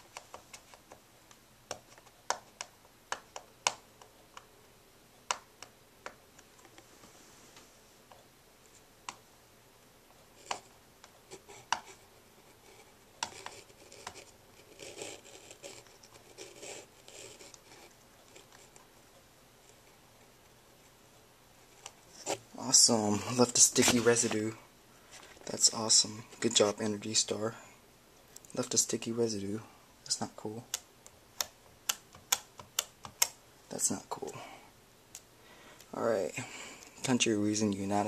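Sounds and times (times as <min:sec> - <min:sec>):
scratching and rubbing: 0:11.3 - 0:18.9
fingernails clicking on plastic: 0:30.7 - 0:33.4.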